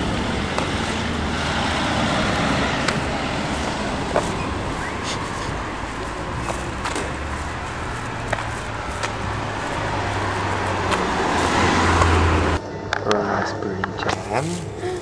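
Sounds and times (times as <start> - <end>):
passing cars rumbling: 0.0 - 15.0.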